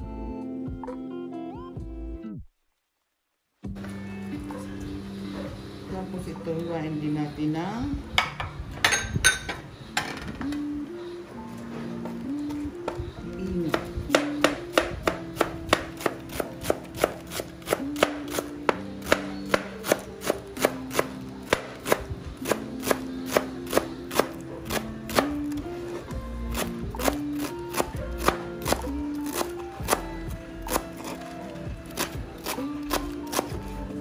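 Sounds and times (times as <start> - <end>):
background music: 0.0 - 2.5, 3.6 - 34.0.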